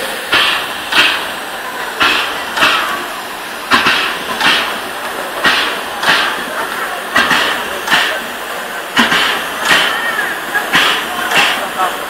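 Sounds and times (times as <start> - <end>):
steam locomotive chuffs: 0.0 - 12.0.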